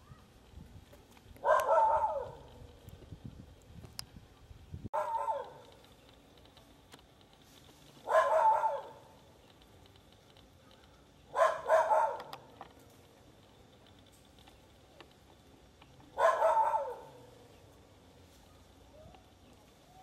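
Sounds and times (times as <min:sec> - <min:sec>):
bark-like animal calls: 0:01.4 - 0:02.6, 0:05.0 - 0:05.8, 0:08.0 - 0:09.1, 0:11.3 - 0:12.4, 0:16.2 - 0:17.3.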